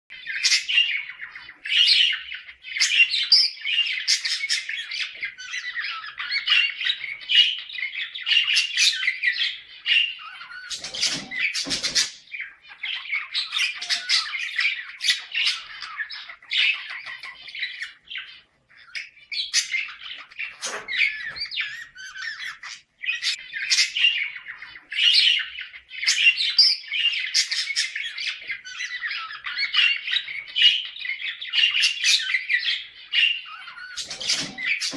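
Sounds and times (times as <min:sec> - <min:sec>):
budgerigars warbling and chattering: 0:00.1 - 0:34.9
budgerigar squawks: 0:10.1 - 0:18.0, 0:19.5 - 0:25.2.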